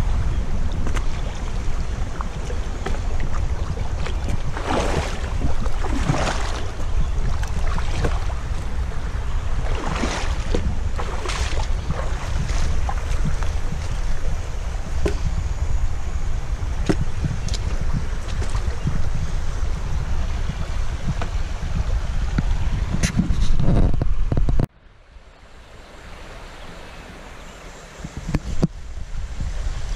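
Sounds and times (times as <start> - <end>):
wind rumble on microphone: 0.0 - 24.7, 25.8 - 29.9
water splashing: 0.6 - 15.4, 16.7 - 19.1.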